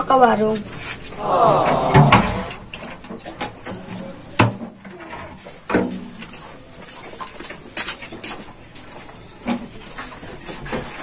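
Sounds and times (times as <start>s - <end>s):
heavy thump of jug: 1.6s - 2.6s.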